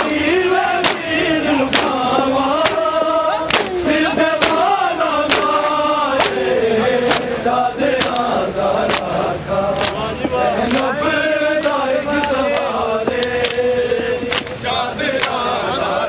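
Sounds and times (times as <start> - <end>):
men chanting together: 0.0 - 16.0
bare-hand chest-beating slaps: 0.8 - 2.9, 3.5 - 9.2, 9.8 - 10.0, 10.6 - 10.9, 11.6 - 13.6, 14.2 - 14.6.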